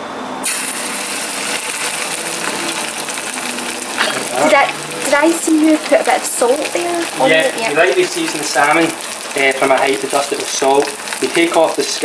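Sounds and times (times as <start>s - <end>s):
fish sizzling in oil: 0.4s - 12.0s
person speaking: 4.0s - 12.0s.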